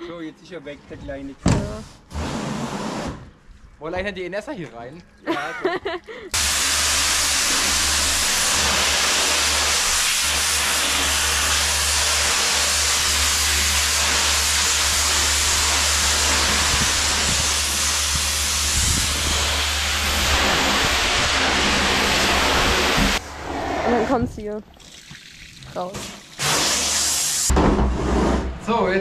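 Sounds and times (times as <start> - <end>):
pump humming: 5.4 - 23.2
pressure washer spraying water: 6.4 - 23.2, 24.9 - 27.5.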